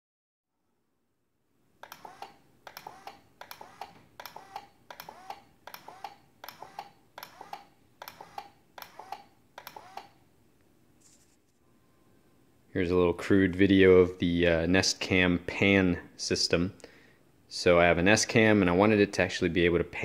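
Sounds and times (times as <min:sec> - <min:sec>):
faint motor hum: 0:01.8 - 0:10.3.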